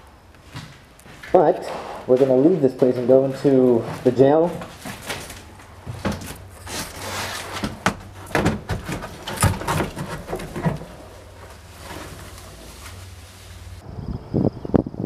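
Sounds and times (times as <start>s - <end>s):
shuffling: 0.4s - 13.8s
knocks and thumps on boards: 7.6s - 11.0s
loose window rattling: 7.6s - 11.6s.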